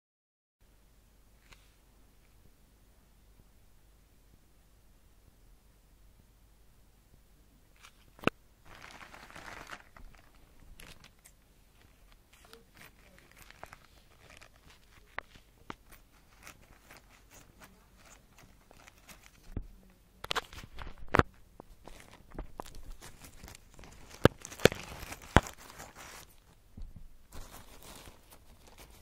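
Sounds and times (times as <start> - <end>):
plastic bag rustling and crinkling: 7.8 - 29.0.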